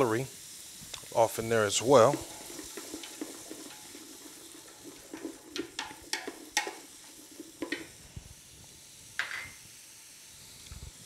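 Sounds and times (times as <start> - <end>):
vegetables sizzling in oil: 0.0 - 11.0
wooden spoon stirring vegetables: 1.0 - 8.0
spoon clacking against metal pot: 2.0 - 8.0.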